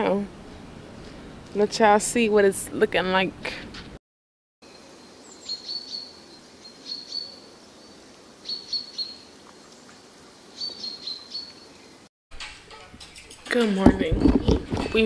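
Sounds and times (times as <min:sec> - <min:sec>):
birds chirping: 0:04.6 - 0:12.1
faint steady hiss: 0:04.6 - 0:12.1.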